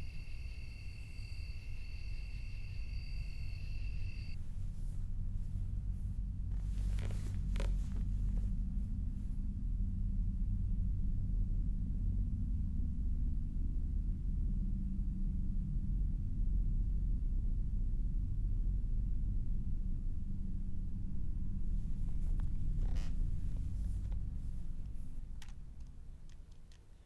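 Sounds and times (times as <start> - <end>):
low rumbling drone: 0.0 - 26.3
brief rustle: 6.5 - 8.6.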